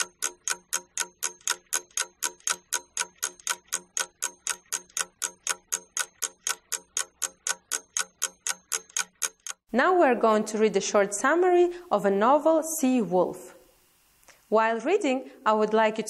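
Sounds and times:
clock ticking: 0:00.0 - 0:09.7.

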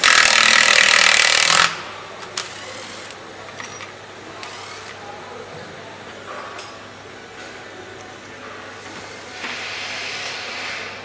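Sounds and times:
handheld power tool running: 0:00.0 - 0:01.7.

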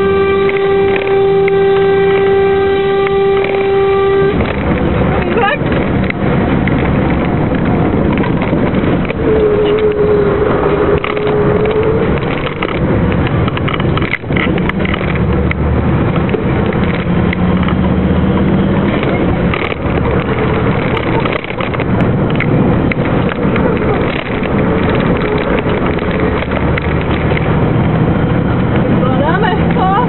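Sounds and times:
steady tone: 0:00.0 - 0:13.5
truck diesel engine under load: 0:00.0 - 0:30.0
wind and road noise: 0:00.0 - 0:30.0.

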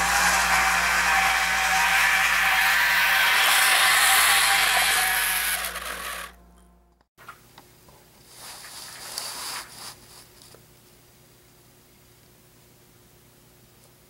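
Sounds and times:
model train gear whine: 0:00.0 - 0:06.5.

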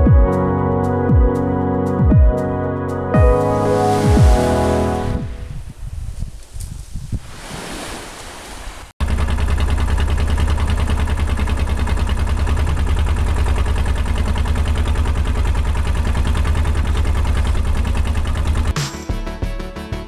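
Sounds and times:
boat engine pulsing loudly: 0:03.1 - 0:05.4, 0:09.0 - 0:18.8
small waves washing at shore: 0:03.6 - 0:05.2, 0:07.1 - 0:09.0.

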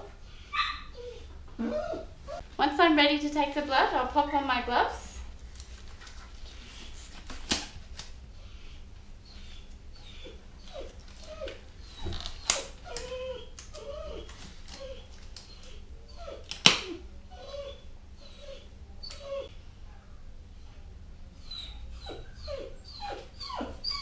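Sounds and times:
dog whimpering: 0:00.0 - 0:02.4, 0:08.5 - 0:19.6, 0:21.4 - 0:24.0
gloves snapping: 0:07.2 - 0:08.2, 0:12.2 - 0:15.6, 0:16.5 - 0:16.9.

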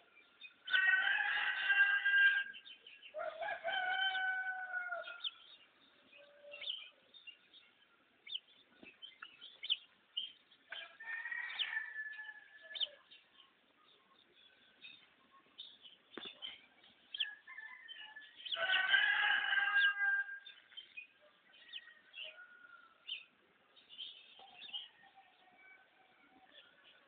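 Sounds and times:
small birds chirping: 0:00.0 - 0:27.0
rooster crowing: 0:00.7 - 0:02.6, 0:03.2 - 0:05.3, 0:10.8 - 0:12.9, 0:17.2 - 0:20.5.

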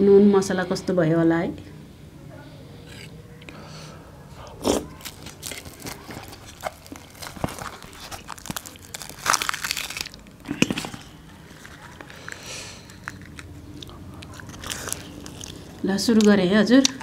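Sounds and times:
fried bread tearing and crackling: 0:04.6 - 0:17.0.

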